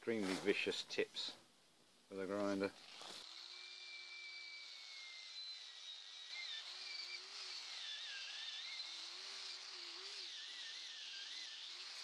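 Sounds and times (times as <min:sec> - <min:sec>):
wire wheel grinder brushing metal: 0:02.4 - 0:12.0.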